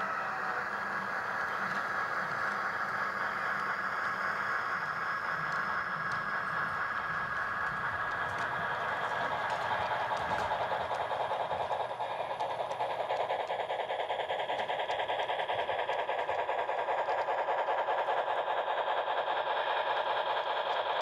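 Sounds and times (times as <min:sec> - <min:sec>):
model train running past: 0:00.0 - 0:21.0.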